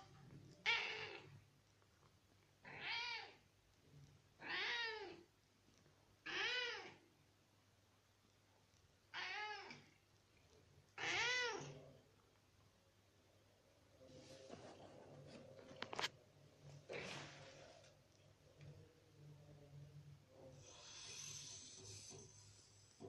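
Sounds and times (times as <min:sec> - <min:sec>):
cat meowing: 0:00.6 - 0:01.4, 0:02.6 - 0:03.4, 0:04.4 - 0:05.2, 0:06.2 - 0:07.0, 0:09.1 - 0:09.9, 0:11.0 - 0:11.8.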